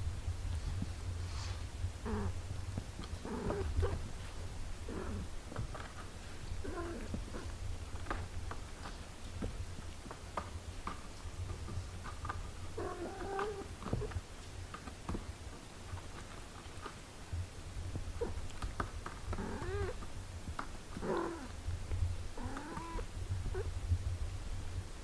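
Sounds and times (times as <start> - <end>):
low steady rumble: 0.0 - 25.0
kittens mewing: 19.3 - 20.1, 22.4 - 23.7.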